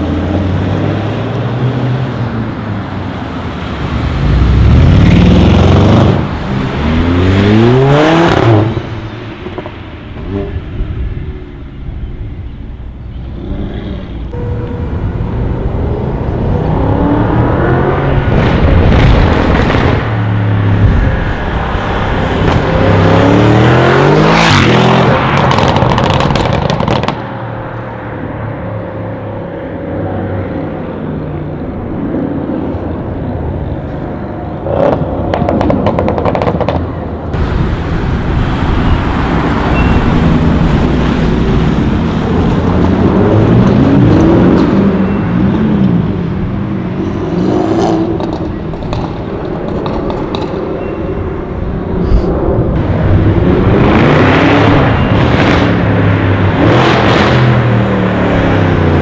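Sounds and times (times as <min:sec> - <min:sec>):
car engines revving past: 0:13.2 - 0:59.0.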